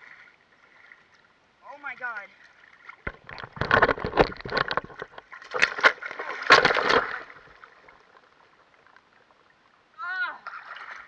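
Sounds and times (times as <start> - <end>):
fish thrashing and splashing: 2.7 - 8.2.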